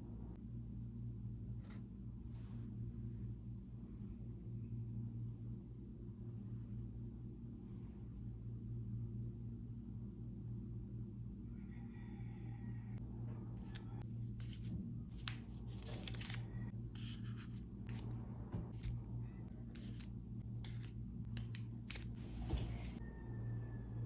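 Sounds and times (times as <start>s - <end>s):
low steady hum: 0.0s - 24.0s
paper liners crinkling: 13.6s - 18.1s, 19.6s - 22.9s.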